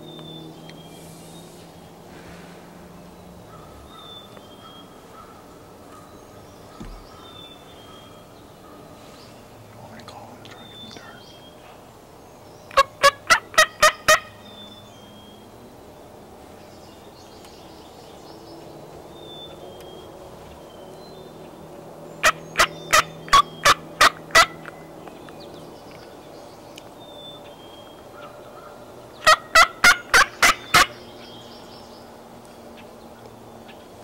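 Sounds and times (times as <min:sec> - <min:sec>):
turkey gobbling: 0:12.7 - 0:14.4, 0:22.2 - 0:24.7, 0:29.2 - 0:31.0.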